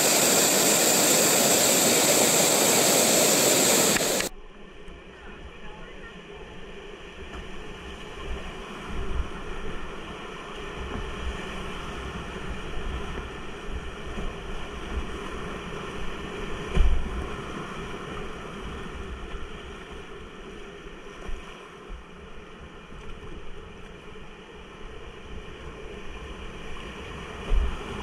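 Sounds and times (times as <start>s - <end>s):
whitewater rapids rushing: 0.0s - 4.3s
boat thump and splash: 16.5s - 17.7s, 27.3s - 28.0s.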